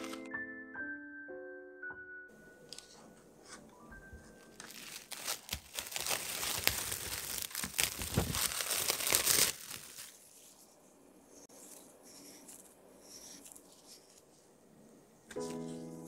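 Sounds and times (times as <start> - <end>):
plastic wrap crinkling: 4.4 - 10.5.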